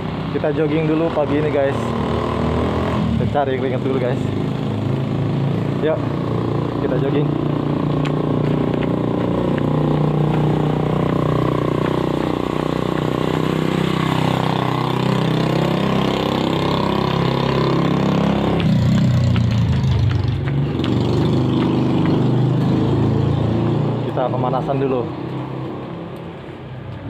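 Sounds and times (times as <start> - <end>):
vehicle passing by: 0.0 - 26.9
vehicle engine running: 3.6 - 23.3.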